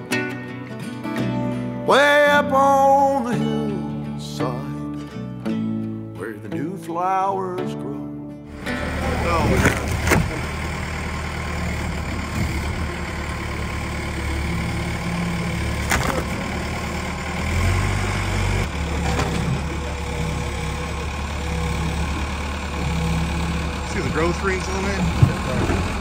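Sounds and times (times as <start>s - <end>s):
heavy machinery engine idling: 8.5s - 26.0s.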